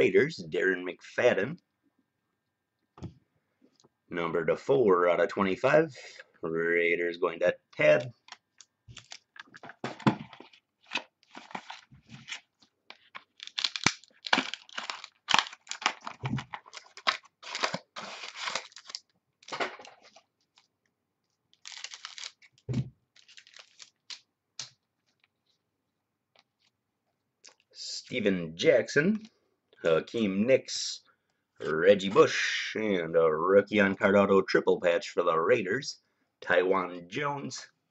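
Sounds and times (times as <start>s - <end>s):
foil wrappers tearing and crinkling: 10.3s - 20.2s, 21.6s - 22.6s, 23.2s - 24.2s.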